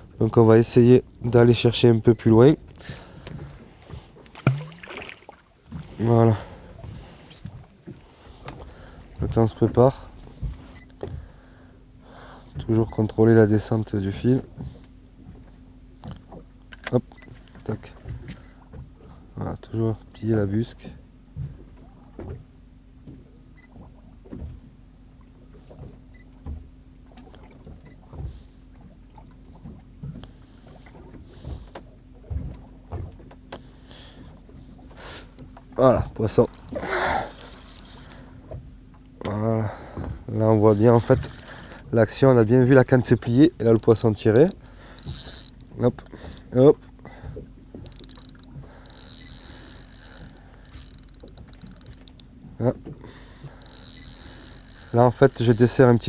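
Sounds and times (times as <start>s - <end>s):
waves slapping against boat hull: 0.0s - 11.4s, 12.4s - 19.3s, 20.4s - 56.0s
fishing reel whirring with ticks: 36.4s - 39.2s, 40.7s - 41.9s, 43.8s - 46.5s, 47.3s - 56.0s.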